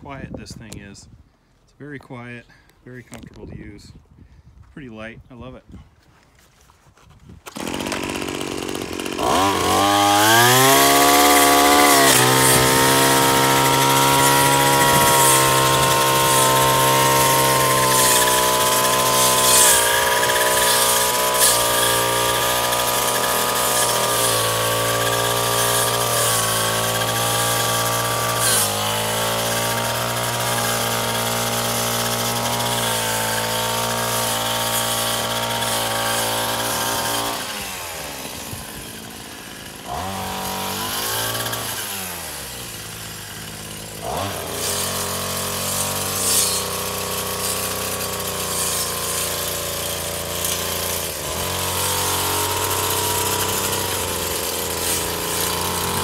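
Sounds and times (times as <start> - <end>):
brush-cutter engine cutting grass: 7.2 - 56.0.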